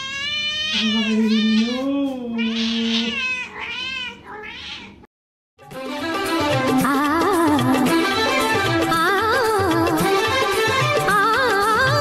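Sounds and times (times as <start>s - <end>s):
cat meowing: 0.0s - 5.1s.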